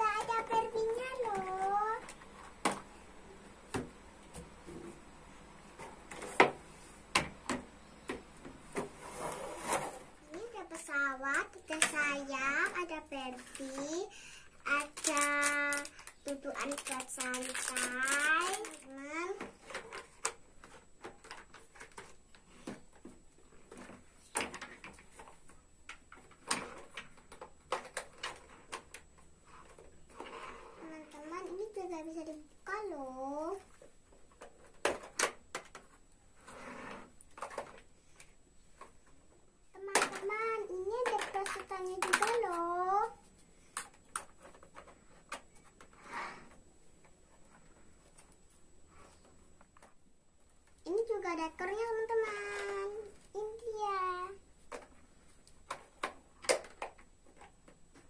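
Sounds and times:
soft scraping: 8.9 - 10.1
plastic toy parts clicking: 14.8 - 18.8.

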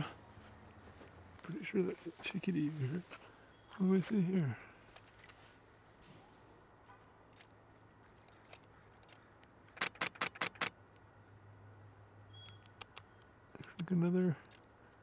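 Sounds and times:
camera shutter burst: 9.8 - 10.7.

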